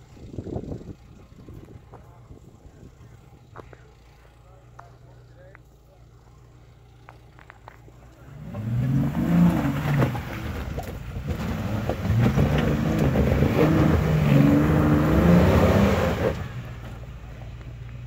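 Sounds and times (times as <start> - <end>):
engine revving under load: 8.2 - 17.0.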